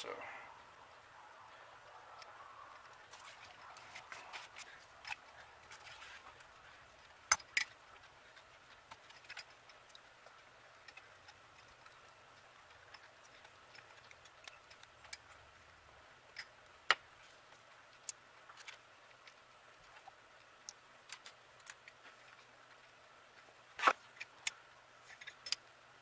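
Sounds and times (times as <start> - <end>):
metal parts clicking and knocking: 3.1 - 15.4, 20.6 - 22.8, 23.8 - 25.7.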